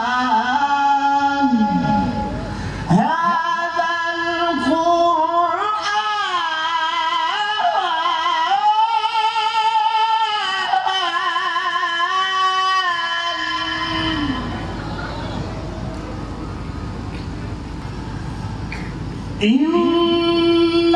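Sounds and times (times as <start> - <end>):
man reciting melodically into microphone: 0.0 - 14.7.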